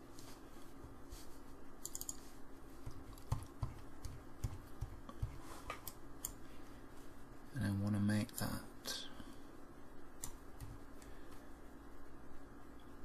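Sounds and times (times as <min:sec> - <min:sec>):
faint steady hum: 0:00.0 - 0:13.0
keyboard and mouse clicks: 0:01.8 - 0:02.2, 0:10.2 - 0:11.1.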